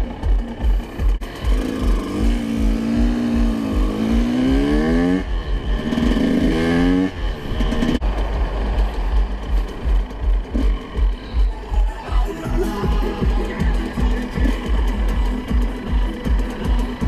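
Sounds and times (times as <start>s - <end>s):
dirt bike engine revving: 0.0s - 11.7s.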